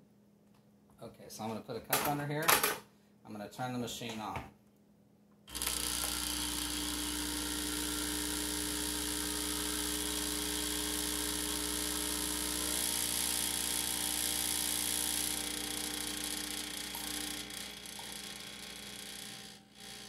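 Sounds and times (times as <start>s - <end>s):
espresso machine pump buzzing: 5.5s - 20.0s.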